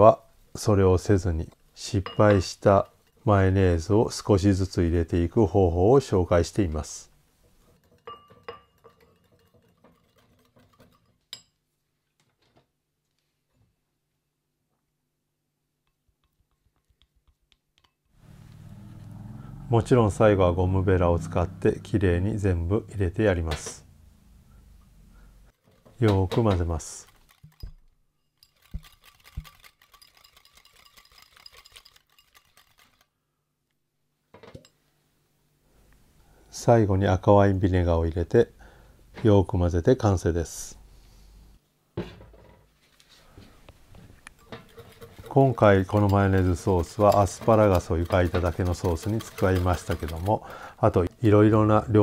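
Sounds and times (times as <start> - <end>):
whisk scraping bowl: 7.6 - 11.2, 28.4 - 33.0, 44.4 - 51.7
whisk clinking against bowl: 7.6 - 11.6, 28.4 - 32.6, 44.4 - 51.3.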